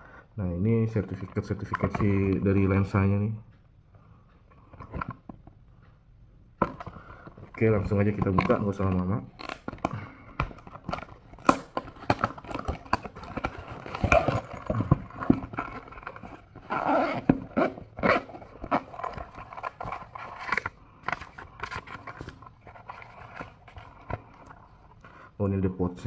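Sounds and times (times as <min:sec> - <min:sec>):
cardboard packaging being opened: 0:06.6 - 0:25.0
eyewear case being unzipped: 0:06.6 - 0:25.2.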